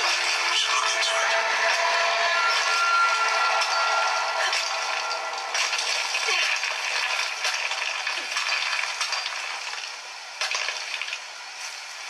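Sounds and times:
crackling hiss ambience: 2.6s - 12.0s.

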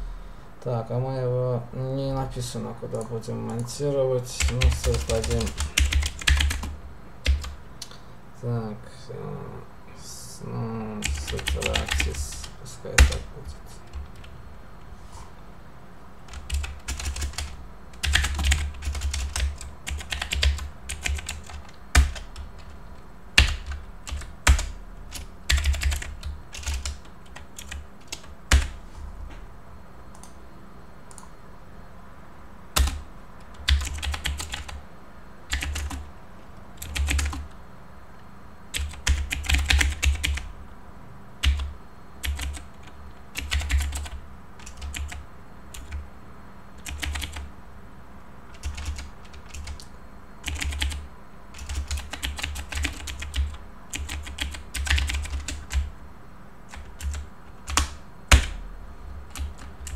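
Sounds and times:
typing on computer keyboard: 4.4s - 7.6s, 11.0s - 13.2s, 16.3s - 22.8s, 23.4s - 28.8s, 32.8s - 34.8s, 35.5s - 36.0s, 36.8s - 37.4s, 38.8s - 40.4s, 41.4s - 46.0s, 46.8s - 47.5s, 48.5s - 51.0s, 51.6s - 55.9s, 56.7s - 58.6s, 59.3s - 59.9s
dull thuds under keystrokes: 16.3s - 22.7s, 56.7s - 58.6s.

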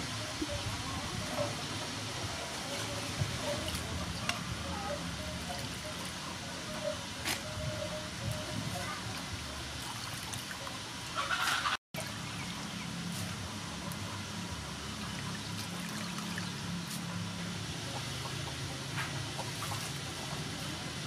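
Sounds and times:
water trickling and sloshing in bowl: 0.1s - 21.0s.

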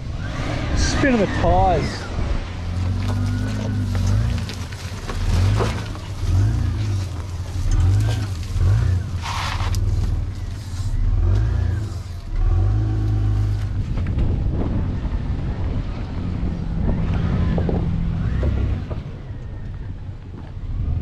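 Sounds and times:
hissing rush: 0.0s - 2.8s
car engine revving: 0.0s - 19.6s.

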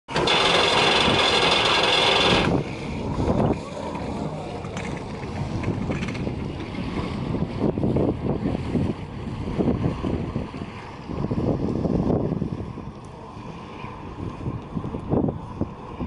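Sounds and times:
boat engine running: 0.1s - 16.0s
wind on microphone: 0.3s - 16.0s.

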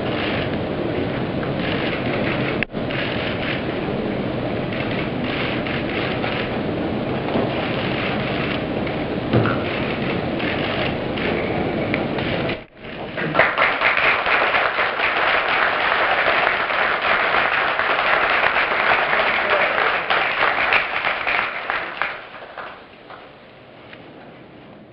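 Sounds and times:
crowd applauding: 12.8s - 23.3s.

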